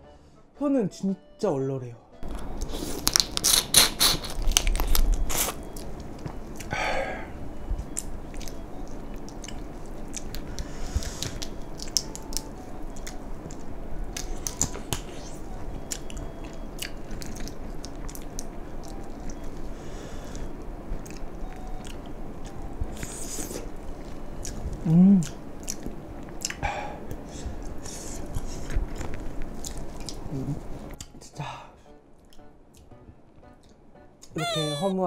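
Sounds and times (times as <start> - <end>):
chewing and biting crayfish: 2.4 - 6.7, 15.8 - 19.6.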